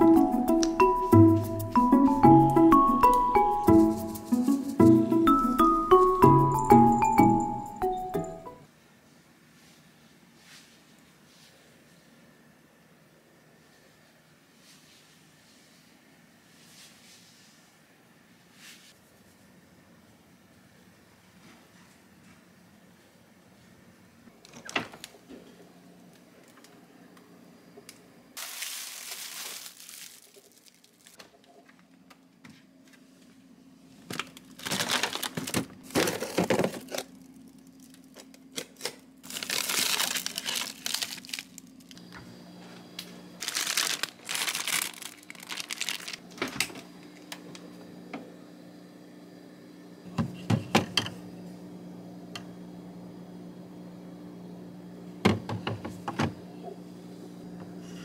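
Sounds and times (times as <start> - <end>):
plastic packaging crinkling: 28.4 - 31.2, 34.0 - 42.1, 43.4 - 46.4.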